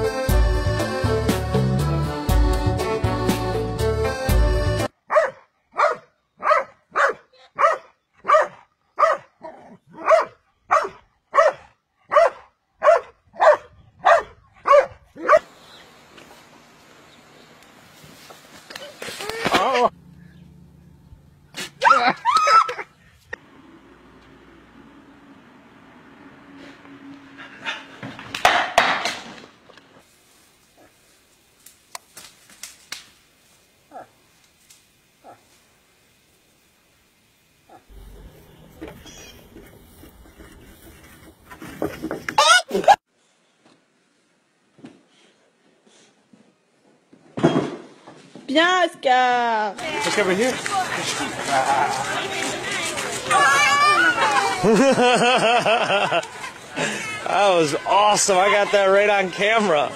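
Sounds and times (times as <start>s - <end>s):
large dog barking: 5.1s - 15.5s
twigs snapping and cracking: 31.6s - 33.2s.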